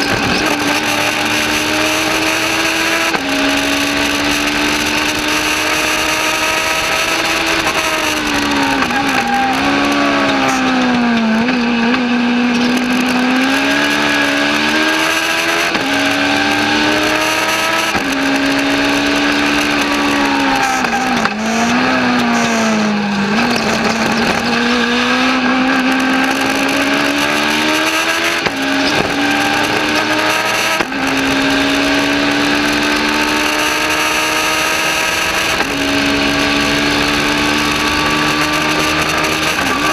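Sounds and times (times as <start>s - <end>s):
racing engine revving and shifting: 0.0s - 39.9s
wind and road noise: 0.0s - 39.9s.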